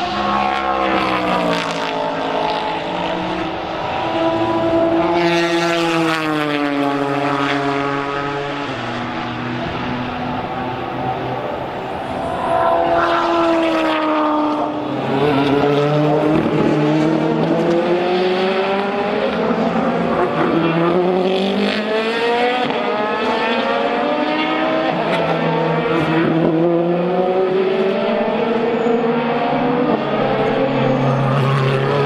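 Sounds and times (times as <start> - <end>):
race car engines accelerating: 0.0 - 32.0.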